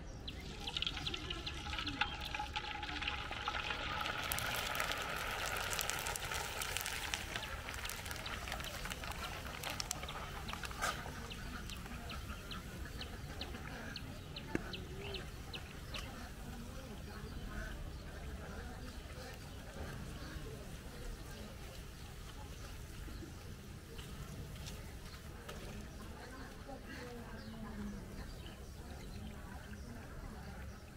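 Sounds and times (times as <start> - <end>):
oil sizzling and crackling: 0.3 - 12.7.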